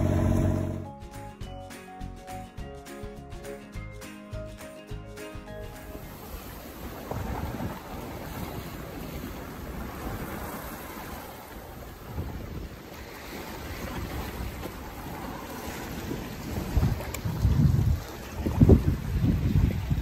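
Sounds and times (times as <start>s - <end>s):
water splashing along a hull: 4.5s - 20.0s
wind buffeting microphone: 6.0s - 20.0s.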